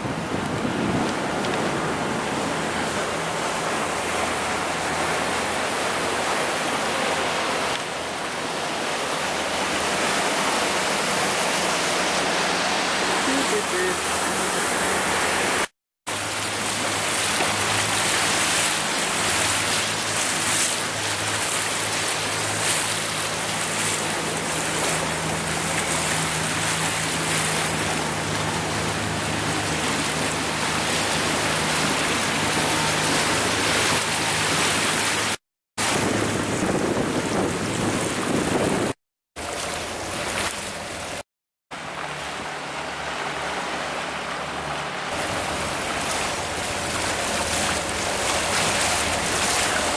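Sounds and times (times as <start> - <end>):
wind buffeting microphone: 0.0 - 4.9, 35.2 - 39.0
water rushing past boat hull: 0.0 - 49.9
low engine drone: 1.2 - 35.4, 39.4 - 49.9.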